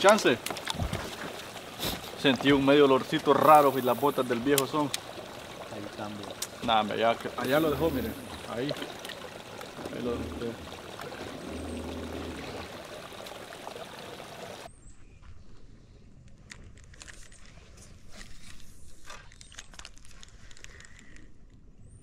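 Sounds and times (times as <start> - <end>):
flowing water rushing: 0.0 - 14.7.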